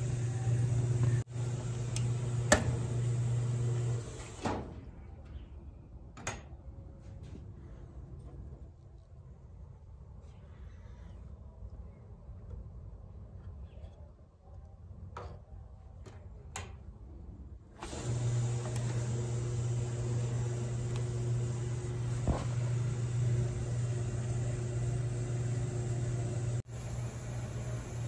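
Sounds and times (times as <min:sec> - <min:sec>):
low electrical buzz: 0:00.0 - 0:04.2, 0:17.8 - 0:28.0.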